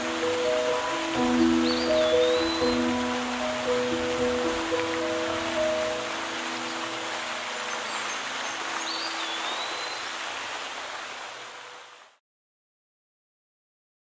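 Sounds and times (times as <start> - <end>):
fountain water splashing: 0.0 - 12.2.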